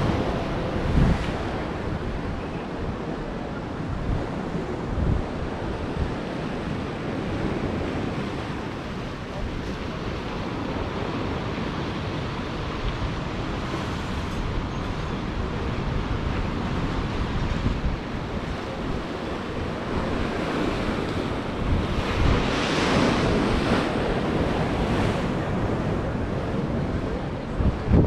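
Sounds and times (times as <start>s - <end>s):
wind buffeting microphone: 0.0s - 28.0s
surf breaking over rocks: 17.6s - 28.0s.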